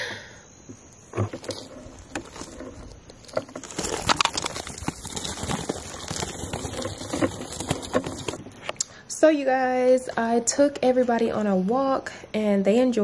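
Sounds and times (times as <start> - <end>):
wheelchair wheels on gravel: 1.2 - 8.6.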